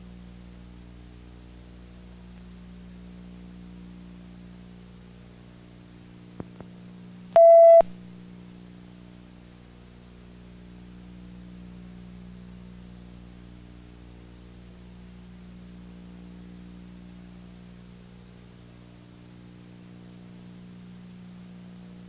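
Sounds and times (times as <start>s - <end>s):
low hum and hiss: 0.0s - 22.0s
short electronic beep: 7.4s - 7.9s.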